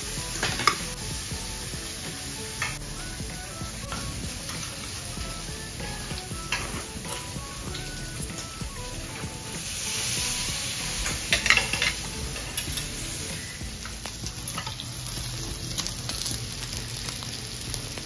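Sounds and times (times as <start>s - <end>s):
meat sizzling on a grill pan: 9.3s - 18.0s.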